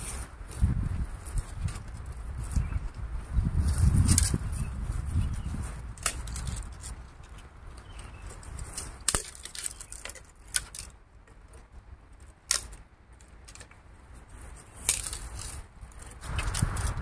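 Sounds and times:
small hard objects clicking together: 0:06.0 - 0:13.8, 0:14.7 - 0:17.0.

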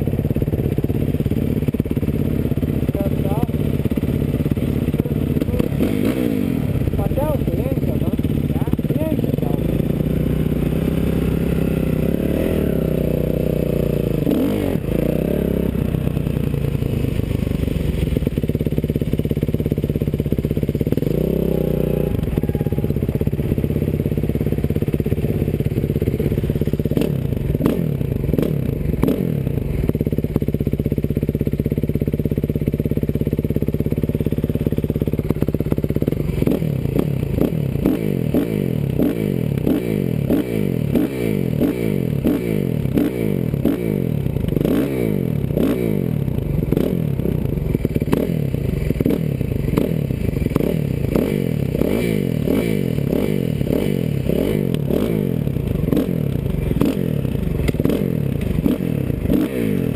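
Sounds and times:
dirt bike engines revving: 0:01.9 - 0:17.2, 0:20.8 - 0:29.6, 0:36.1 - 0:59.9.

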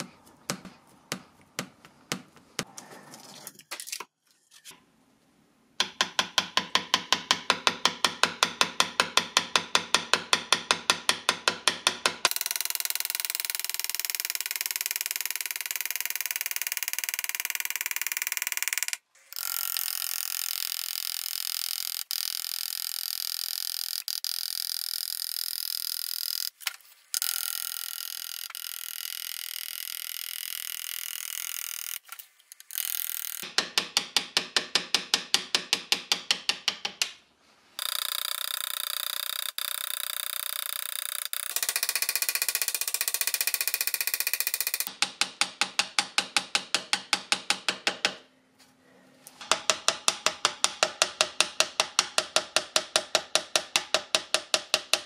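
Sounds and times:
rapid tapping on hand graver: 0:37.8 - 0:48.0.

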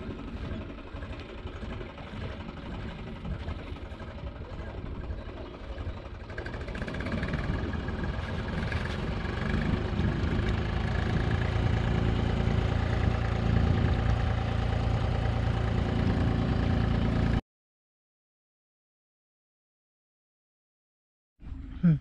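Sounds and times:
engine running: 0:00.0 - 0:17.4.

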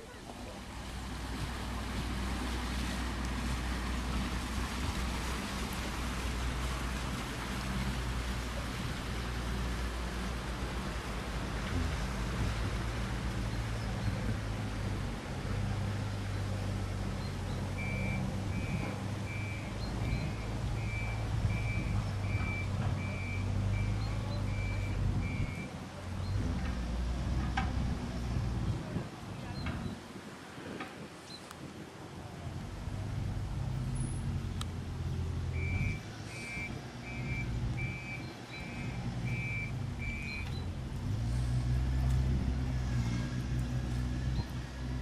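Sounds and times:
boat engine running: 0:00.0 - 0:30.0.

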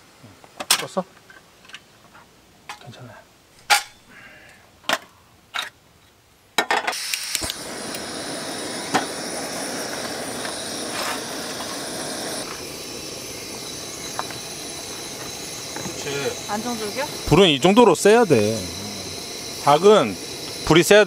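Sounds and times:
gas stove flame hissing: 0:06.9 - 0:21.0
stove igniter clicks: 0:07.0 - 0:12.6.

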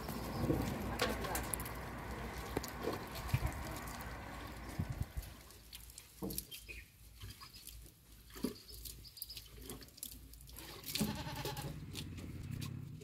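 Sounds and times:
livestock bleating: 0:11.0 - 0:11.8.

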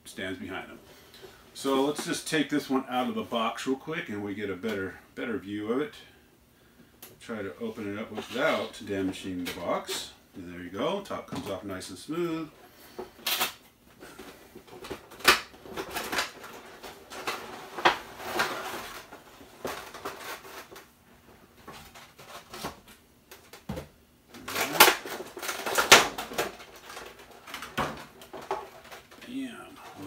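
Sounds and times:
plastic rustling: 0:11.3 - 0:30.0.

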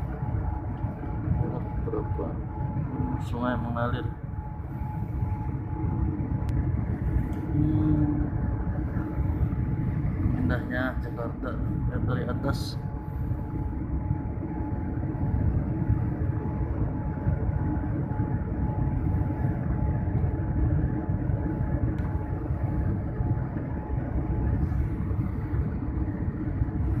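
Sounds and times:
thin steady tone: 0:00.0 - 0:20.1
jet engine cabin rumble: 0:00.0 - 0:27.0.

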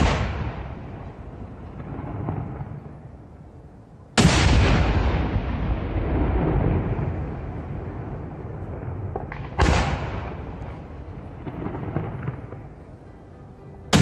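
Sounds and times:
loud mortar bang: 0:00.0 - 0:00.8, 0:04.2 - 0:05.5, 0:09.1 - 0:10.5.

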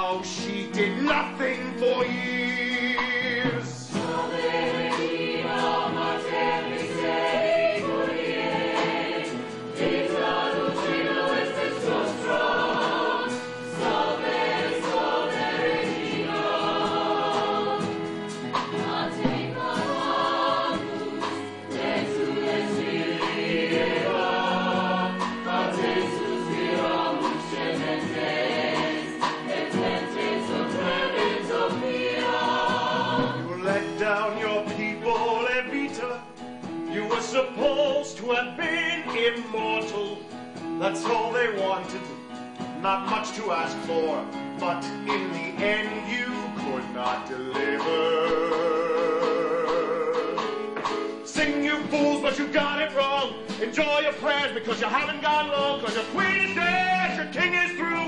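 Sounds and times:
instrumental accompaniment: 0:00.0 - 0:58.0
choir singing: 0:02.1 - 0:36.1, 0:44.9 - 0:53.9.

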